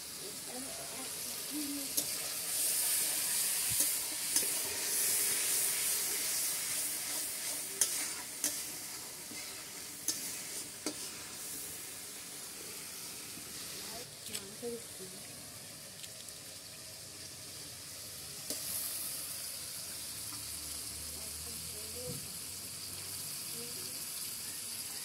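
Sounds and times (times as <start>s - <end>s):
masala sizzling in oil: 0.0s - 25.0s
metal spatula scraping pan: 7.0s - 11.6s.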